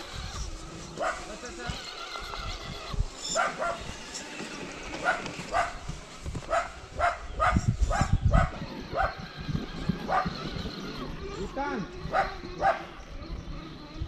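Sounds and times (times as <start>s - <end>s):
dog barking: 1.0s - 1.3s, 3.4s - 3.8s, 5.0s - 5.8s, 6.5s - 9.1s, 12.1s - 12.9s.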